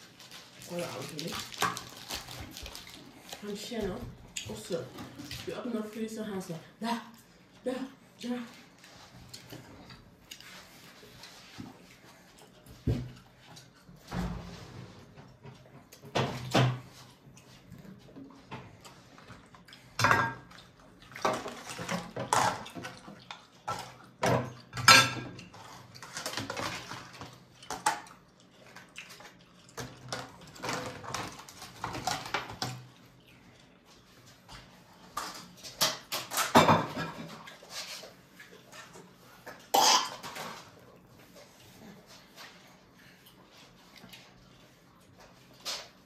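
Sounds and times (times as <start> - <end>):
plates and cutlery clattering: 20.0 - 20.6, 23.7 - 27.0, 35.2 - 37.8.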